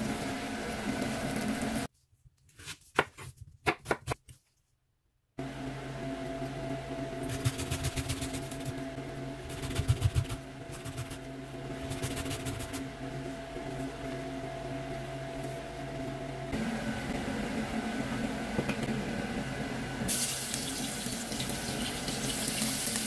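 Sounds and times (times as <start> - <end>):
low electrical hum: 5.4 - 23.0.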